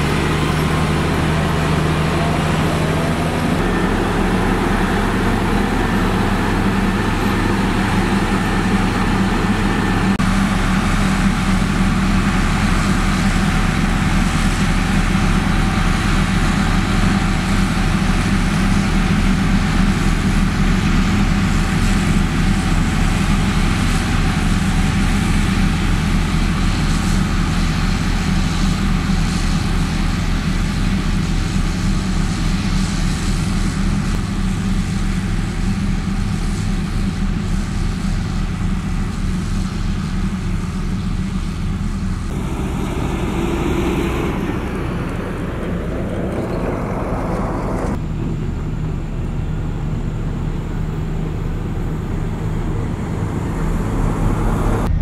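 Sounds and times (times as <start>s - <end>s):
diesel engine drone: 0.0s - 55.0s
deep hum: 41.4s - 55.0s.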